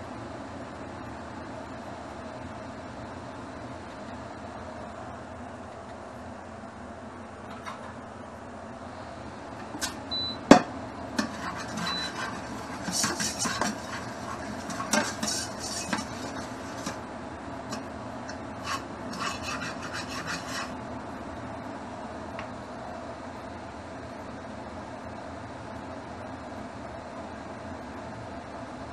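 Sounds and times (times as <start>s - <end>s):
chopsticks scraping inside a wok: 11.2s - 17.0s, 17.7s - 20.8s.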